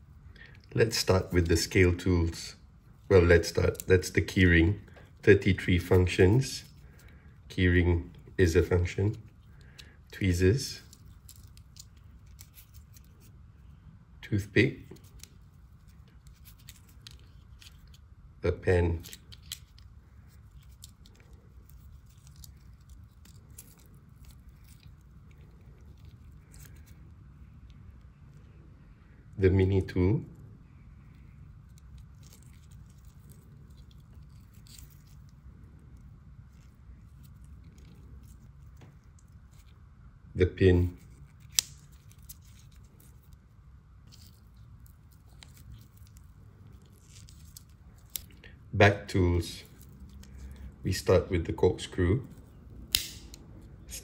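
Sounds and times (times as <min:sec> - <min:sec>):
low steady hum: 0:00.0 - 0:54.0
small tools clicking and rubbing: 0:10.7 - 0:13.4, 0:14.9 - 0:18.1, 0:19.0 - 0:28.5, 0:31.1 - 0:39.8, 0:41.0 - 0:43.4, 0:44.0 - 0:48.5.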